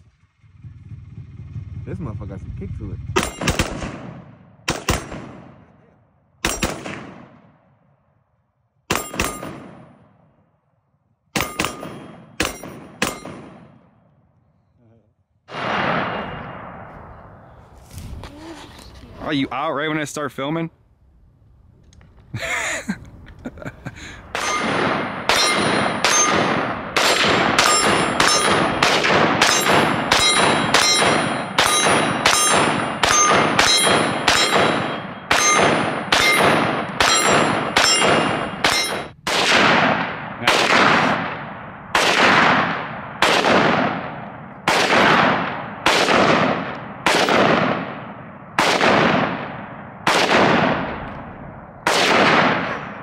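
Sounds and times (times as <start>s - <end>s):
bullets ringing on steel targets: 3.2s - 3.8s, 6.4s - 6.9s, 8.9s - 9.7s, 11.4s - 13.6s, 24.4s - 39.2s
rifle shots echoing: 3.2s - 5.8s, 6.4s - 7.9s, 8.9s - 10.6s, 11.3s - 14.3s, 15.4s - 17.7s, 24.2s - 53.0s.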